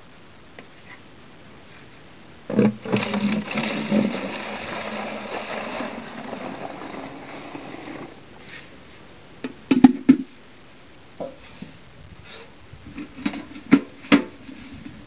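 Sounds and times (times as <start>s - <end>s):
sap pouring into pail: 2.5s - 8.2s.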